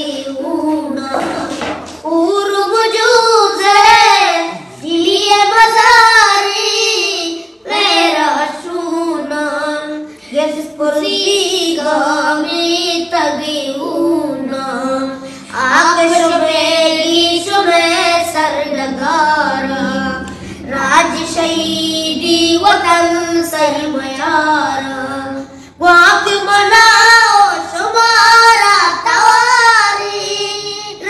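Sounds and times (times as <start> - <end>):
person singing slow melody: 4.5 - 5.0, 18.8 - 22.3.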